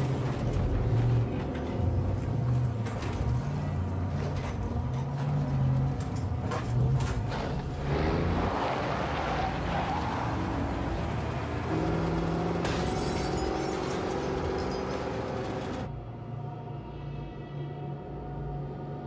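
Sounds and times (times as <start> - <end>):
truck engine revving: 7.4 - 12.8.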